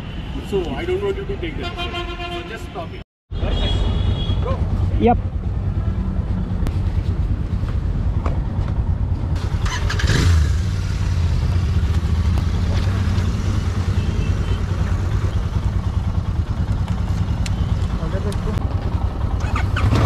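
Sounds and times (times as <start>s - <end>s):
motorcycle engine running: 4.2s - 20.0s.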